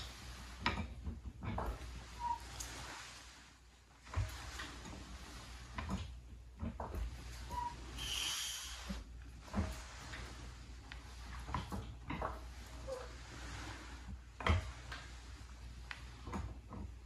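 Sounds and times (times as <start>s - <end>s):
floor jack pump strokes: 0.0s - 17.0s
hydraulic hiss: 8.0s - 9.0s.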